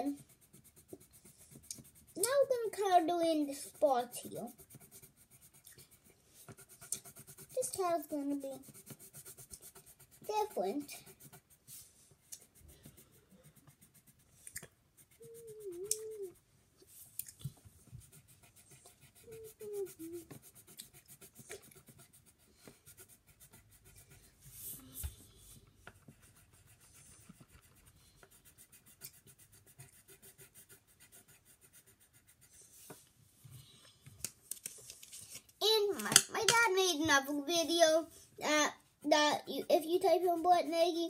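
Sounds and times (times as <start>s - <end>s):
pencil scratching on paper: 0.0s - 17.0s, 17.8s - 33.1s, 35.0s - 41.0s
child humming: 15.2s - 16.4s, 19.2s - 20.4s.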